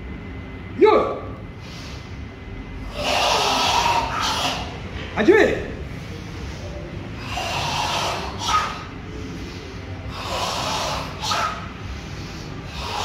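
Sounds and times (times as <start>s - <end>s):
long hissing breaths: 1.6s - 4.8s, 5.9s - 13.0s
group breathing forcefully in unison: 1.6s - 4.9s, 5.9s - 13.0s.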